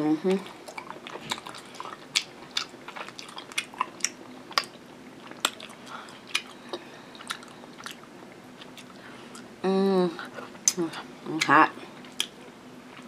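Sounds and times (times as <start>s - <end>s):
chewing and mouth smacks: 0.4s - 9.5s, 12.0s - 13.0s.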